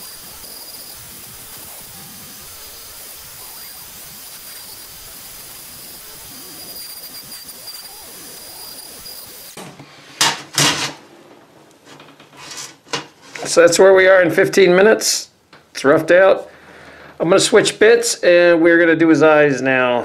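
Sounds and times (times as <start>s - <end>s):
rotary tool whining: 0.0s - 9.6s.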